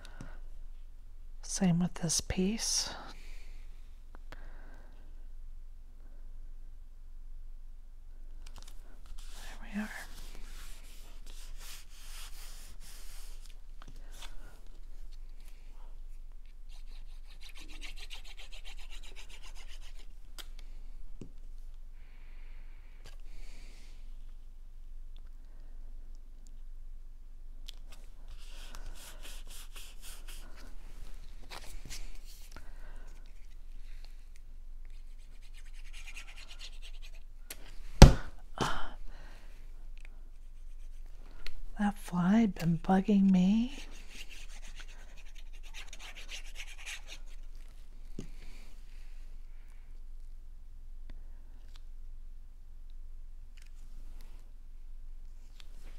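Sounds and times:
hands rubbing paper: 10.0 - 14.5, 16.6 - 20.1, 28.3 - 34.1, 34.9 - 37.3, 43.7 - 47.6
paper rubbing: 28.3 - 30.7, 34.9 - 37.2
hand swatting thump: 37.9 - 38.4.

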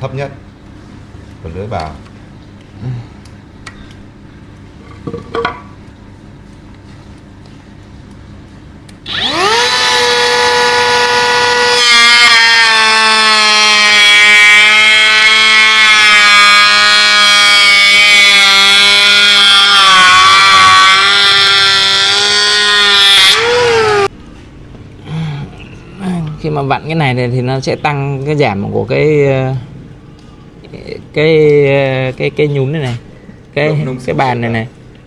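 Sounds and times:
blades shaving wood: 9.0 - 24.1
electric planer whining: 9.1 - 24.1.

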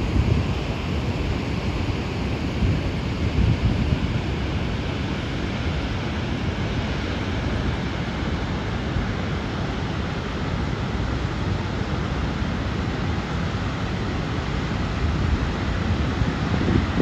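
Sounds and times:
wind gusting on microphone: 0.0 - 6.6, 14.8 - 17.0
river rushing: 0.0 - 17.0.

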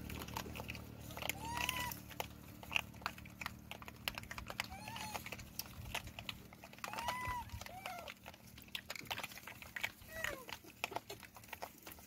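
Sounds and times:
clicks and crackles of chewing: 0.0 - 12.0
monkey rising-and-falling calls: 1.3 - 2.0, 4.6 - 5.3, 6.9 - 8.1.

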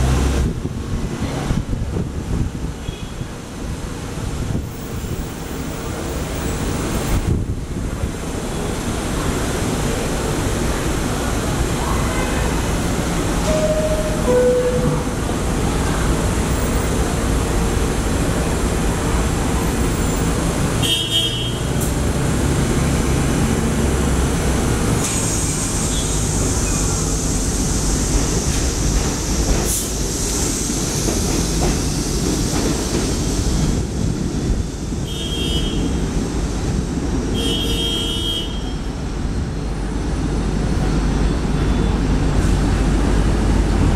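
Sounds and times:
train arriving: 0.0 - 43.9
train wheels rumbling on rail: 0.0 - 43.9
short high-pitched tones: 13.4 - 15.2.

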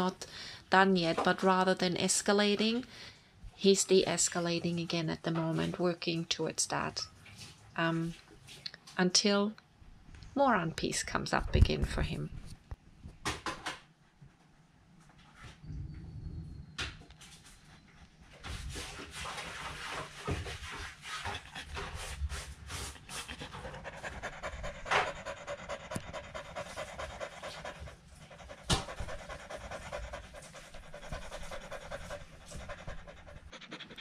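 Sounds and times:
dog panting heavily: 20.6 - 34.0.

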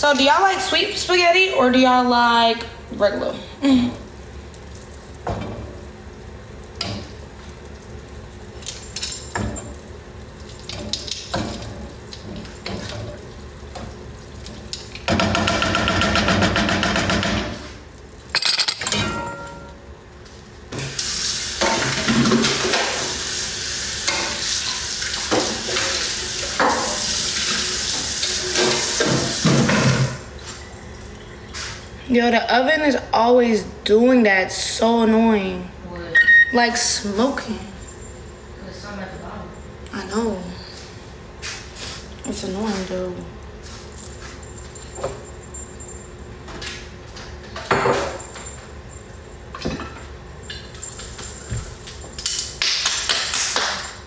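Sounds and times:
pots and utensils knocking: 15.0 - 17.7, 18.4 - 19.8
tap water running into sink: 20.8 - 30.2.

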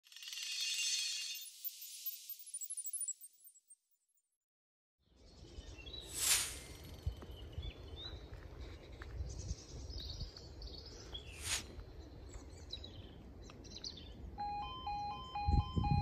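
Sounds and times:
small birds chirping: 5.1 - 14.4
two-tone electronic warble alarm: 14.4 - 16.0.

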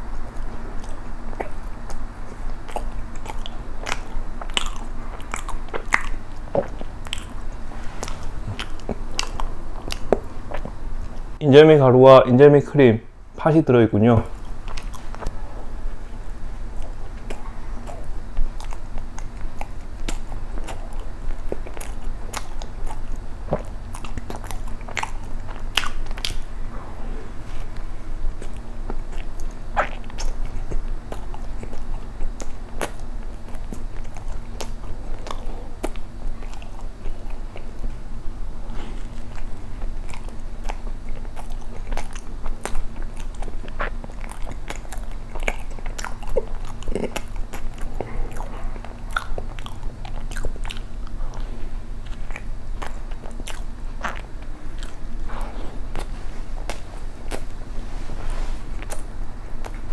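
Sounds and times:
chewing soft bread: 0.0 - 11.4, 14.2 - 59.9
low steady hum: 0.0 - 59.9
wet mouth clicks: 27.7 - 37.7, 52.1 - 57.6.

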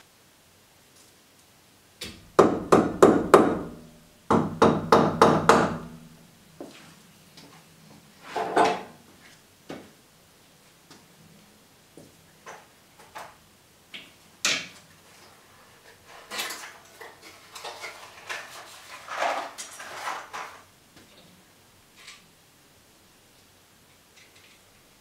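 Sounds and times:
clatter and rustling: 15.0 - 20.7.

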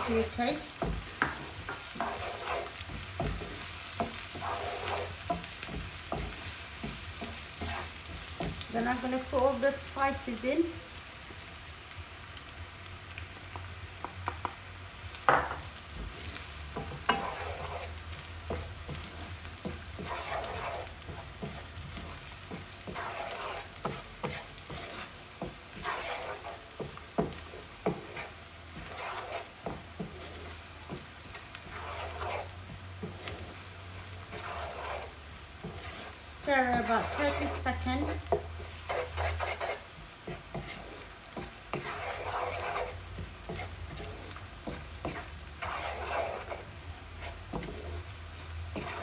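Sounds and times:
spatula stirring and scraping: 0.0 - 11.4, 15.2 - 49.0
onions sizzling in oil: 0.0 - 49.0
spatula knocking on pan: 0.7 - 8.6, 13.6 - 14.6, 15.3 - 16.1, 18.4 - 31.1, 36.7 - 46.0.

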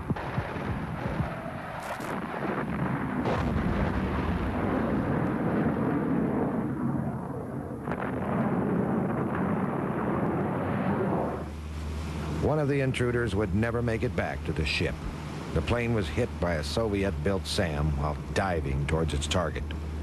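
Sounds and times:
bomb explosions rumbling: 0.0 - 11.5
sharp explosion cracks: 0.0 - 11.5.

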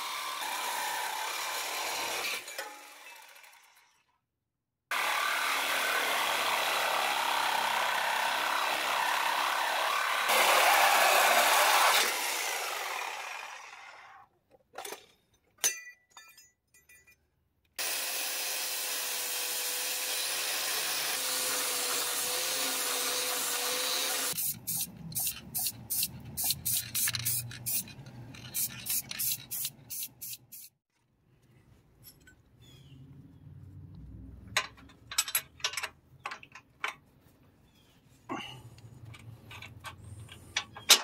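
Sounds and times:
cutting tool running: 4.9 - 14.2, 17.8 - 24.4
grinder whining: 4.9 - 14.2, 17.8 - 30.7
spray-paint can hissing: 24.4 - 27.8, 28.6 - 30.7.

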